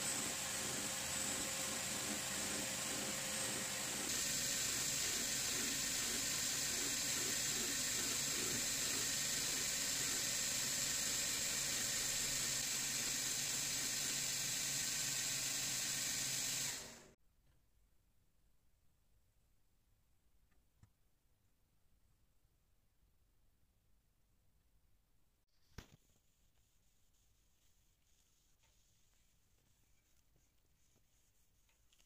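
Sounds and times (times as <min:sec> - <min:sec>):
belt grinder grinding steel: 0:00.0 - 0:17.0.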